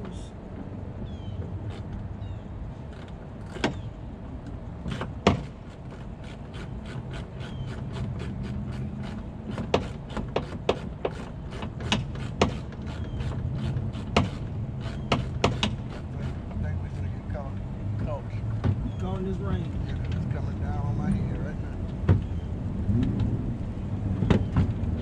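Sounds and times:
low steady hum: 11.4s - 25.0s.

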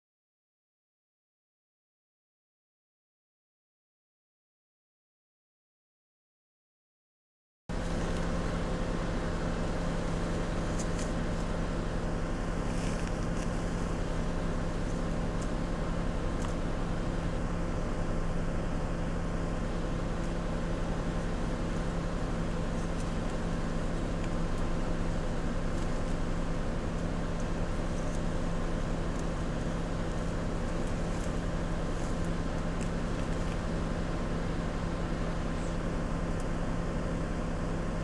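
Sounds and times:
vehicle engine idling: 7.7s - 38.0s.

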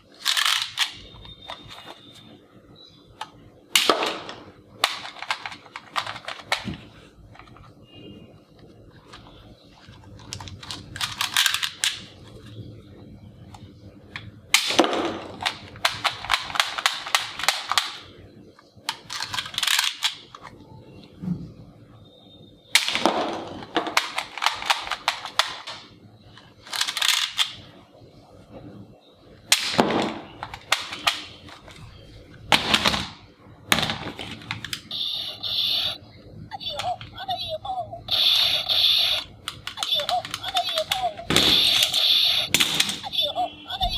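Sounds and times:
toy gun rattling clicks: 19.0s - 20.4s, 39.5s - 42.0s.

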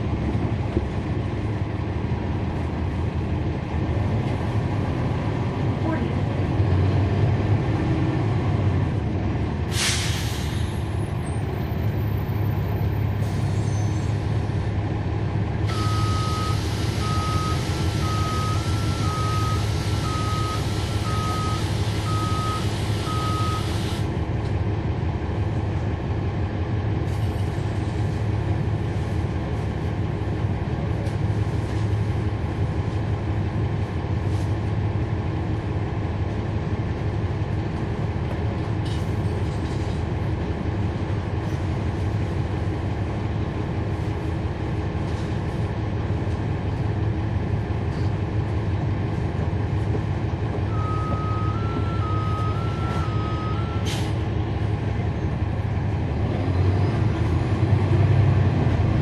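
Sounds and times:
bus diesel engine running: 0.0s - 59.0s
air brake hiss: 9.7s - 10.9s, 53.8s - 54.2s
repeating warning beep: 15.7s - 23.7s, 50.7s - 53.8s.

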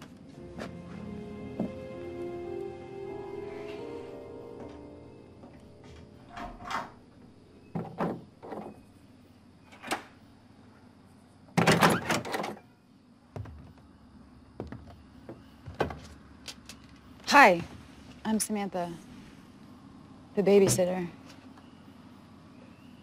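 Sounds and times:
footsteps: 0.0s - 2.0s, 3.5s - 6.8s.

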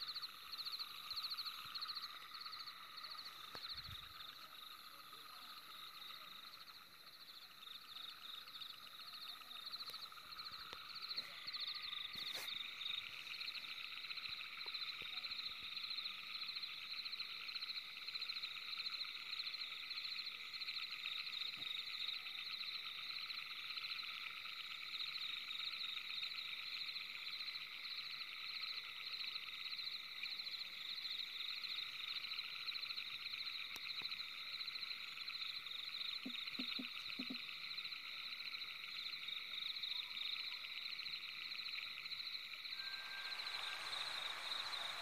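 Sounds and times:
high-pitched pulsing trills: 42.7s - 45.0s.

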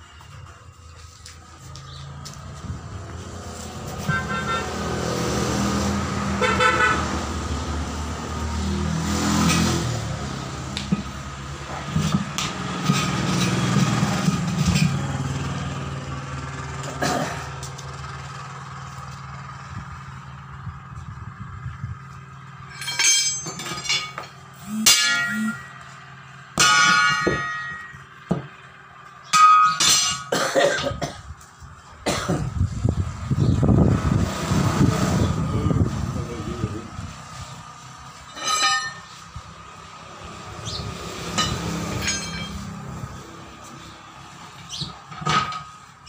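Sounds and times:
metal parts clanking: 22.7s - 25.8s, 26.6s - 28.0s, 29.3s - 30.9s, 38.2s - 39.2s, 41.4s - 42.7s.

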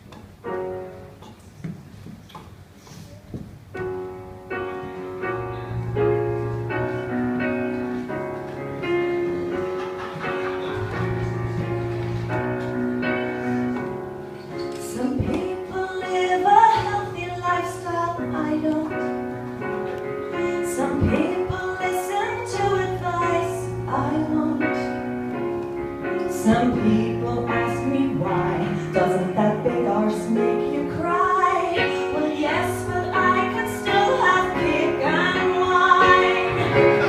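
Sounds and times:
electronic keyboard piano chords: 3.6s - 37.0s
woman singing: 14.8s - 19.2s, 20.6s - 25.0s, 26.3s - 37.0s.

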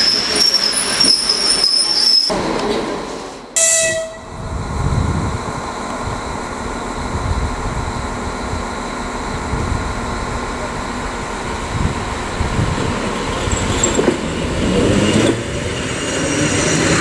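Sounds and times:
train rolling rumble: 0.0s - 17.0s
train horn blast: 3.6s - 4.4s.

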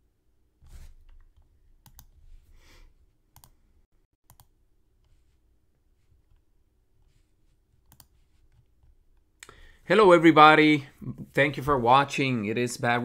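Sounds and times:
computer mouse clicks: 1.0s - 2.2s, 4.3s - 5.2s, 7.8s - 9.5s.

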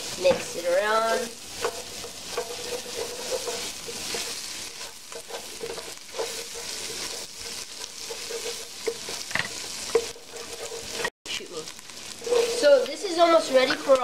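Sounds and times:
wooden spoon scraping pot: 0.0s - 11.1s, 12.1s - 14.0s
garlic sizzling in butter: 0.0s - 14.0s.

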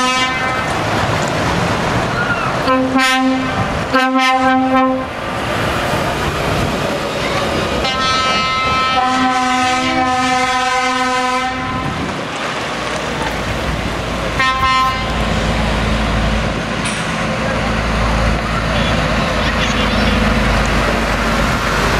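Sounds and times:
truck air horn: 0.0s - 0.7s, 2.6s - 5.2s, 7.8s - 12.0s, 14.4s - 15.2s
diesel truck engines: 0.0s - 21.9s.

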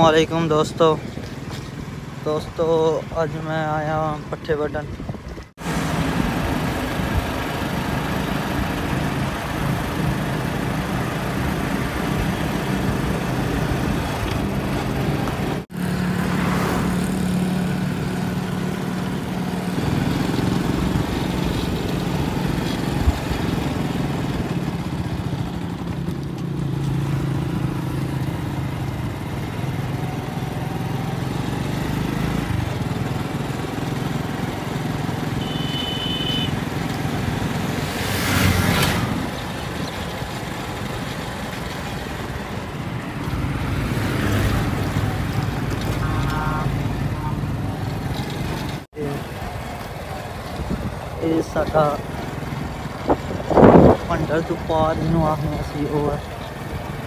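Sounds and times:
motorcycle engine running: 6.0s - 37.8s.

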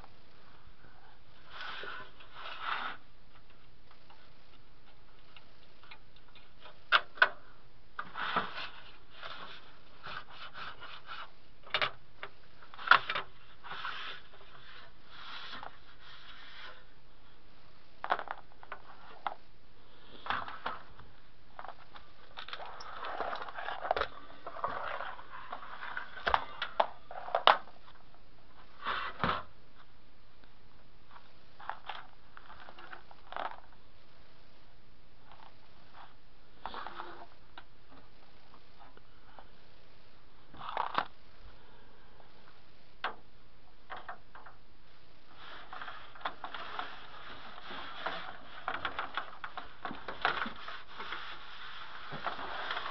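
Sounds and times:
plastic scraping and rubbing: 1.4s - 4.3s, 8.0s - 17.0s, 18.0s - 19.5s, 20.1s - 28.0s, 31.1s - 33.8s, 45.3s - 52.9s.

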